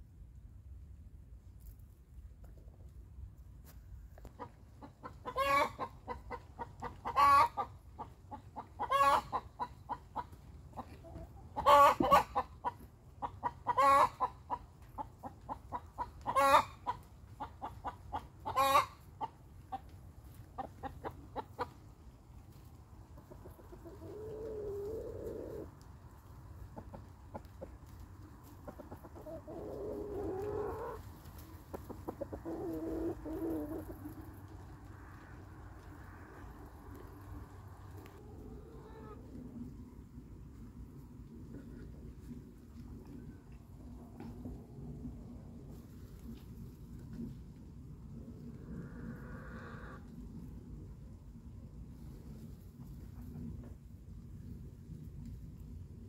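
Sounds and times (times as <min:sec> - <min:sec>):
hen clucking: 0:04.3 - 0:22.0, 0:23.1 - 0:25.8, 0:26.7 - 0:34.6, 0:36.9 - 0:39.2.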